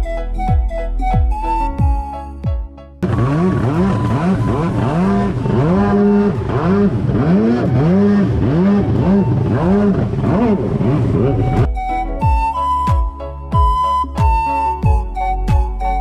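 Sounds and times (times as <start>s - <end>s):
rushing spray and wake water: 3.0s - 11.6s
jet ski engine revving: 3.0s - 11.7s.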